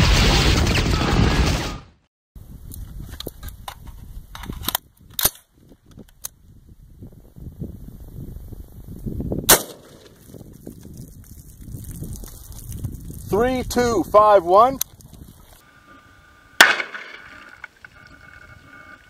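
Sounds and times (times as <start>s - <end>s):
rifle shot: 9.5s - 10.2s, 16.6s - 17.4s
faint sharp crack: 16.6s - 17.4s.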